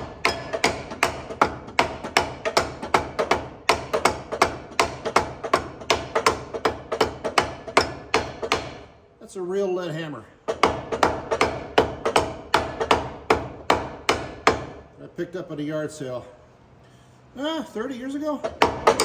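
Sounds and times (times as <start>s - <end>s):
hammer tapping metal: 0.0s - 8.9s, 10.5s - 14.8s, 18.4s - 19.0s.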